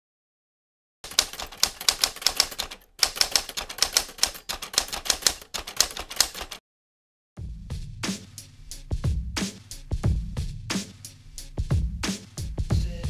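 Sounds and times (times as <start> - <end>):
typewriter key clacks: 1.1 - 6.6.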